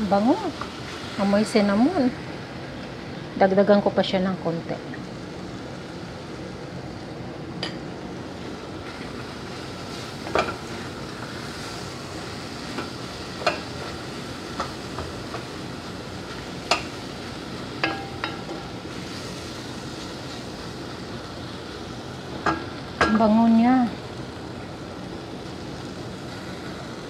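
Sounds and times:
meat sizzling in a pot: 0.0 - 27.0.

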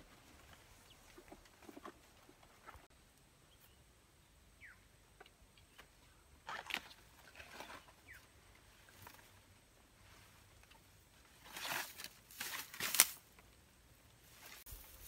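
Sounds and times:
dry leaves and sticks rustling: 6.5 - 13.6, 14.2 - 15.0.

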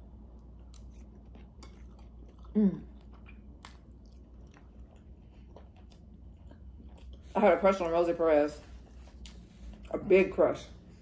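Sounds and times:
person chewing: 0.1 - 7.4, 8.7 - 9.9.

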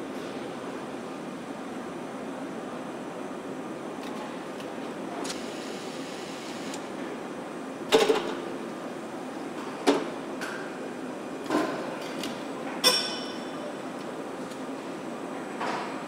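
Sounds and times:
industrial air noise: 0.0 - 16.0.

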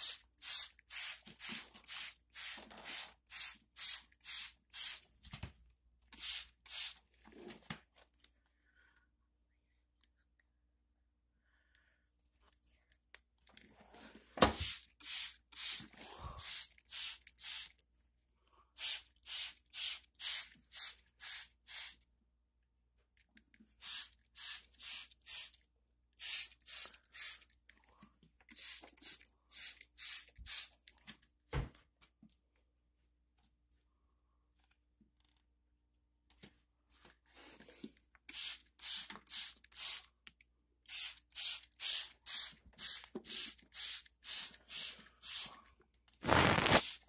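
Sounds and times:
spray bottle squirting water: 0.0 - 5.0, 6.1 - 7.0, 14.4 - 17.8, 18.8 - 22.0, 23.8 - 25.6, 26.2 - 27.6, 28.5 - 30.9, 38.3 - 40.1, 40.9 - 45.6, 46.2 - 47.0.

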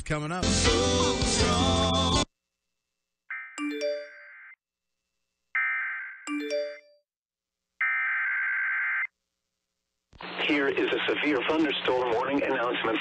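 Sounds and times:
phone notification chime: 3.3 - 4.5, 6.3 - 7.0.

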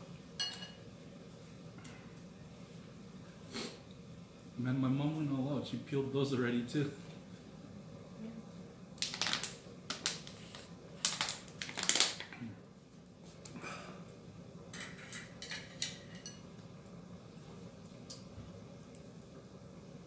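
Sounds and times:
plastic bottle crackling: 9.0 - 10.4, 11.0 - 12.3.

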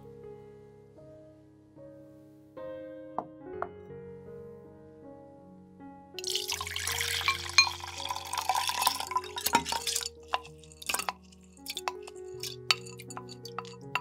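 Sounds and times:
soft background music: 0.0 - 14.0
water poured into a glass tumbler: 6.2 - 14.0.

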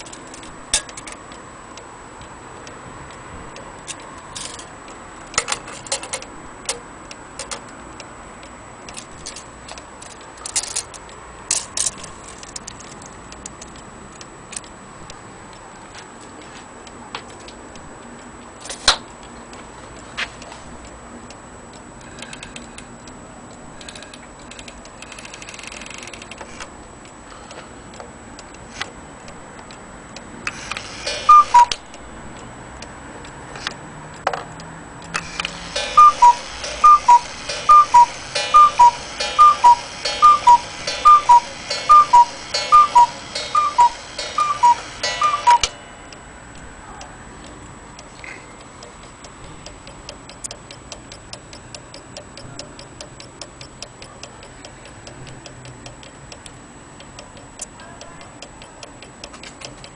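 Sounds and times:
pendulum tick-tock: 0.0 - 15.7, 20.7 - 59.9
bellows hiss and whirr: 30.5 - 32.3, 35.2 - 45.8
cuckoo clock call: 30.8 - 32.1, 35.2 - 47.5.

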